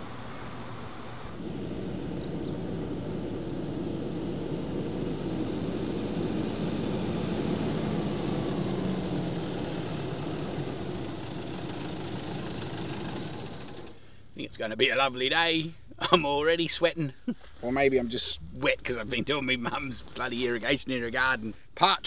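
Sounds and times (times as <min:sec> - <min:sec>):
pickup truck driving on dirt: 0:00.0 - 0:14.2.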